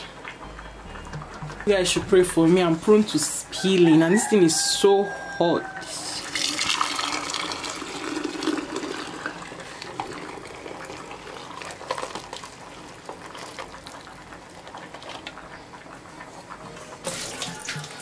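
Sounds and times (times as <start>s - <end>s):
liquid pouring through funnel: 6.1s - 15.3s.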